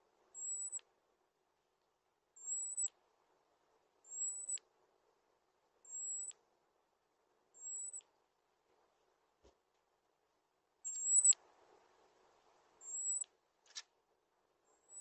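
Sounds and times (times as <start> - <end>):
small bird whistled call: 0.4 - 0.8, 2.4 - 2.9, 4.1 - 4.6, 5.9 - 6.4, 7.6 - 8.0, 10.8 - 11.4, 12.8 - 13.3.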